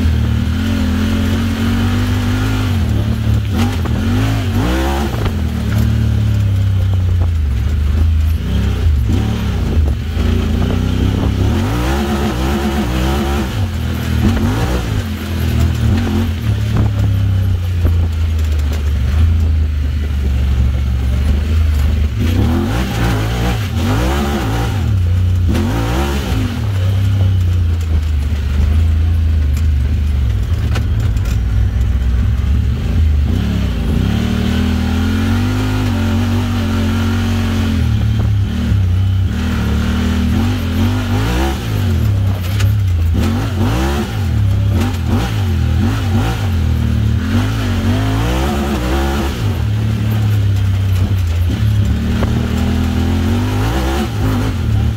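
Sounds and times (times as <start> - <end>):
deep exhaust rumble: 0.0 - 54.9
engine revving: 0.0 - 54.9.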